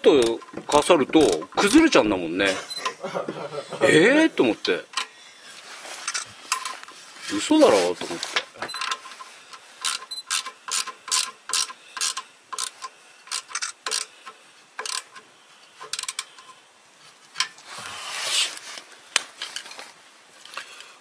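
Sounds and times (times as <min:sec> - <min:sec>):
ratchet wrench clicking: 0:09.8 - 0:15.2, 0:15.8 - 0:16.3.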